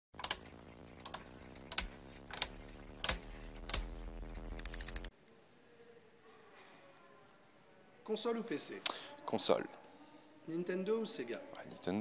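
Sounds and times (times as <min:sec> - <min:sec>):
keystroke clicks: 0:00.2 - 0:00.4.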